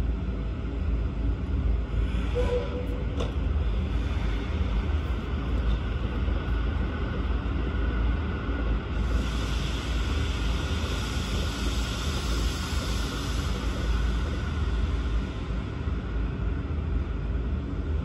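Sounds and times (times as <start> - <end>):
steam hissing: 7.6 - 16.5.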